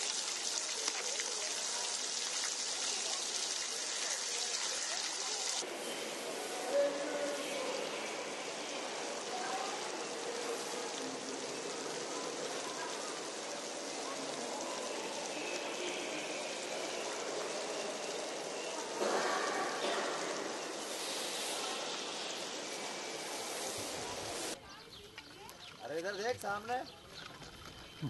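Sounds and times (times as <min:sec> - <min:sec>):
hiss-like hall ambience: 0:05.2 - 0:24.6.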